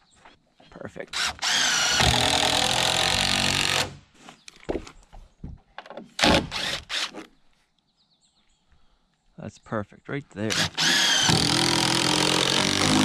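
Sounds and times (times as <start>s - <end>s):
impact driver driving screw into wood: 1.1s - 4.0s, 6.1s - 7.3s, 10.5s - 13.0s.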